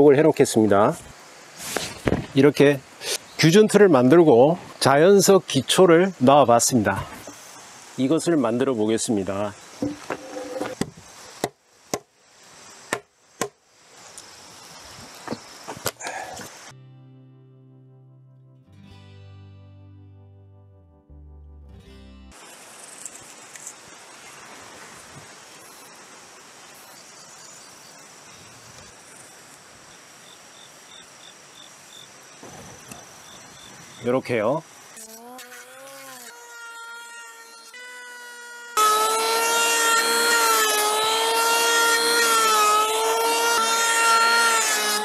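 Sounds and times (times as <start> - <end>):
insect chirping: 0.0 - 16.7, 22.3 - 38.8
log knocking on wooden sawhorses: 9.8 - 12.1
music: 16.7 - 22.4
insect high-pitched trill: 34.7 - 39.0.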